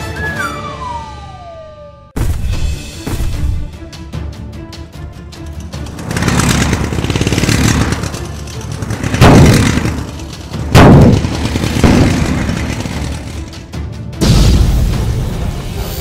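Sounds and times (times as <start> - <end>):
rumbling vehicle engine: 5.1 - 14.0.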